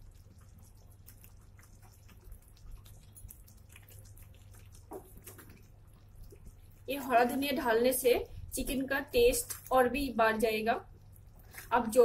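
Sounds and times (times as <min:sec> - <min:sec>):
gravy simmering with soft pops: 0:00.0 - 0:12.0
low steady hum: 0:00.0 - 0:12.0.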